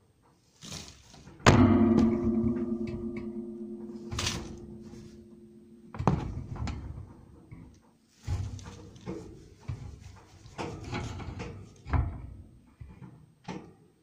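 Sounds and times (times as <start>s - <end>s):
low ringing tone: 1.5s - 6.4s
sharp knock: 1.5s - 6.5s.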